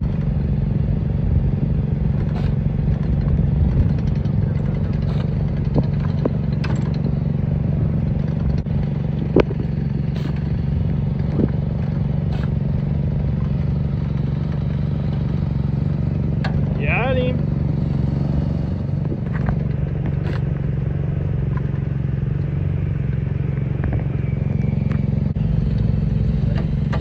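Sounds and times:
small engine humming: 0.0 - 27.0
sharp clicks and knocks: 2.1 - 7.4, 8.0 - 16.8, 18.9 - 20.7, 21.5 - 25.1.

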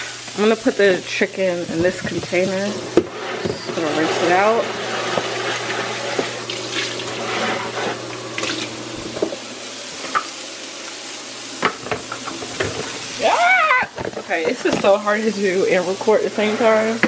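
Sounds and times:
water spraying into plastic container: 1.8 - 8.9.

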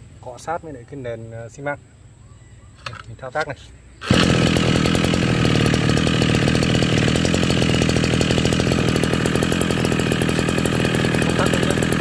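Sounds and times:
brush cutter engine running: 4.0 - 12.0.

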